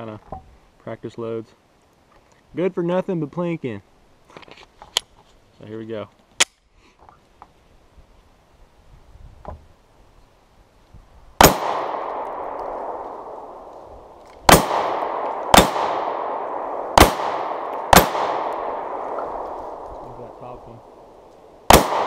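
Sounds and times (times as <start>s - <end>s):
pistol shots: 11.4s - 19.8s, 20.8s - 22.0s.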